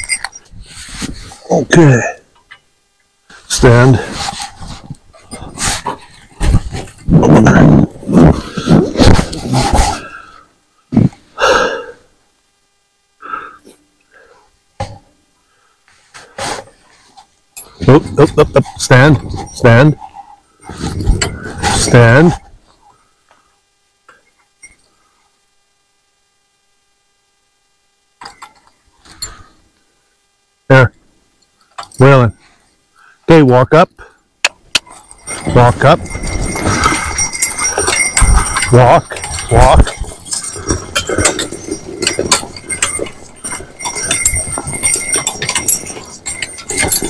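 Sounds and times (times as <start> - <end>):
faint harness clinks: 0.0 - 1.4, 17.5 - 22.4, 24.1 - 25.0, 28.2 - 29.5, 34.6 - 47.0.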